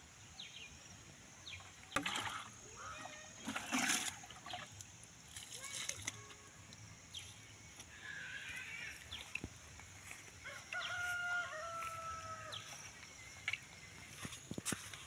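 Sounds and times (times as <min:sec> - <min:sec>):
rooster crowing: 0:10.4 - 0:12.8.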